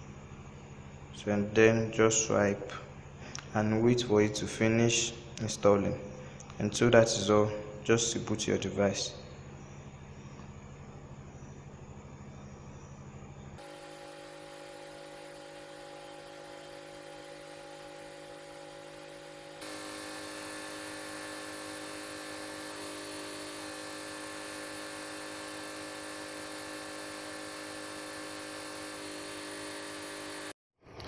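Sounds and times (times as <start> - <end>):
electronic hum and buzz: 8.8 - 31.0.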